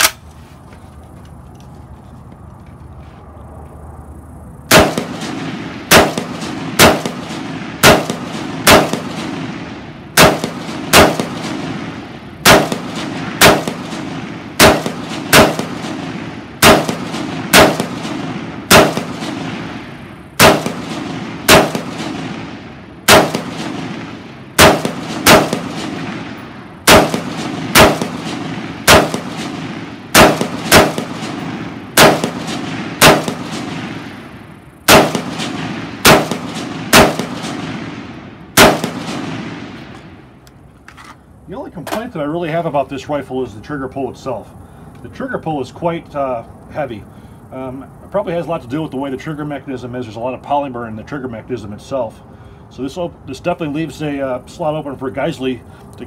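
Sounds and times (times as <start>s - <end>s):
rifle shots with echo: 4.7s - 40.4s.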